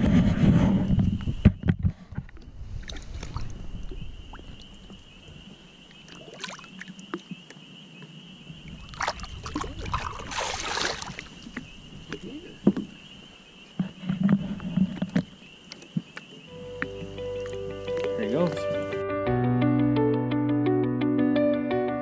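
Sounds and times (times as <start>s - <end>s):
water lapping at boat side: 2.0s - 18.8s
loud fish splash: 8.8s - 11.5s.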